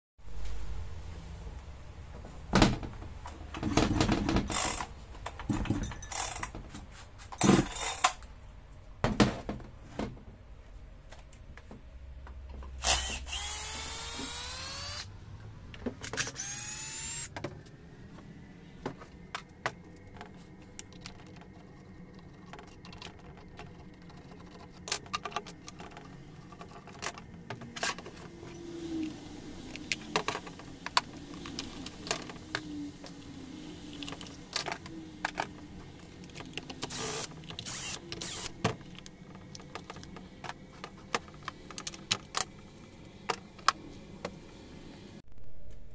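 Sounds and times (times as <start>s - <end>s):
cordless drill whirring: 12.8s - 15.1s, 16.2s - 17.3s, 36.9s - 38.6s
plastic parts clicking and knocking: 18.8s - 28.2s, 34.0s - 44.4s.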